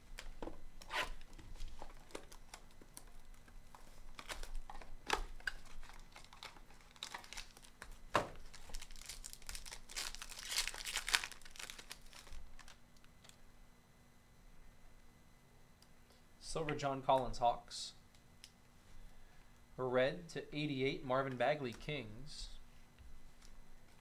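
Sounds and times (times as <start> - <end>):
foil pack crinkling and tearing: 1.0 - 13.4.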